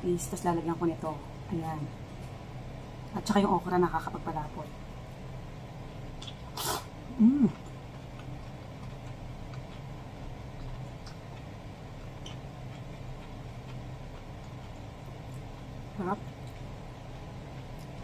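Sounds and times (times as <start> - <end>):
steady low hum: 0.0 - 18.0
faint chewing clicks: 7.5 - 15.6, 16.2 - 18.0.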